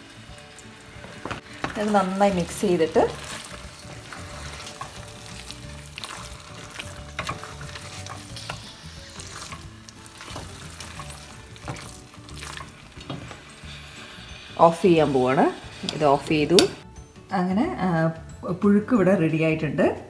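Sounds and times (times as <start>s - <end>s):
spatula scraping metal pot: 1.1s - 16.8s.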